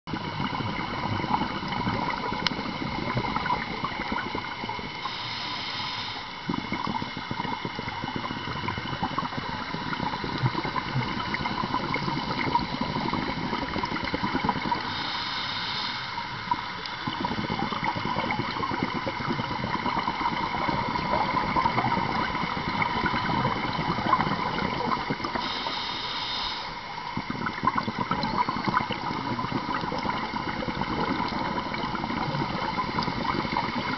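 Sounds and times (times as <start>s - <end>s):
exhaled bubbles rushing: 0.1s - 14.9s, 16.2s - 25.6s, 26.7s - 33.9s
steady hum: 0.1s - 33.9s
scuba inhalation hiss: 4.8s - 7.9s, 14.4s - 18.3s, 24.4s - 27.0s.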